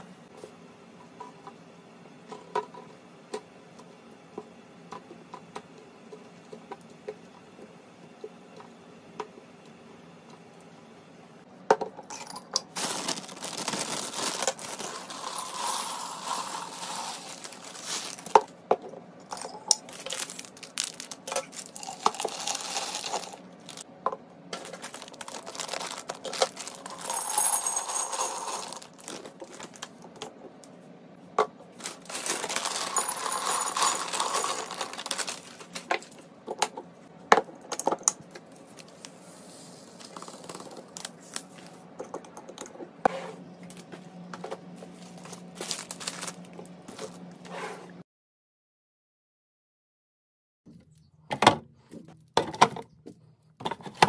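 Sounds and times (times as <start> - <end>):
plastic bags crinkling and tearing: 12.6 - 18.5, 19.8 - 23.9, 24.5 - 27.2, 28.5 - 29.9, 31.7 - 35.9, 45.2 - 46.7
pasta and seeds pouring into glass: 12.7 - 18.3, 19.8 - 23.8, 24.8 - 29.1, 32.0 - 35.5.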